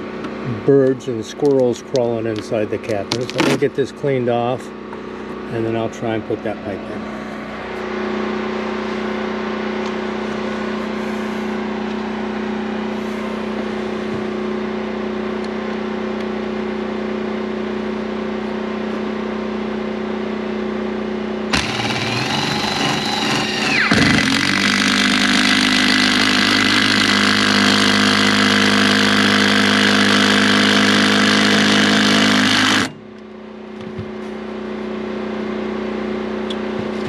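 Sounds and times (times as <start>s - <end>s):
steady mechanical hum: 0.0s - 37.0s
power drill running: 21.5s - 33.0s.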